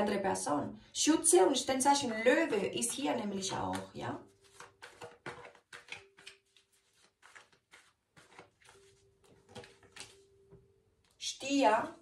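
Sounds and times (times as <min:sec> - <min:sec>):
cards being shuffled: 0:03.7 - 0:10.2.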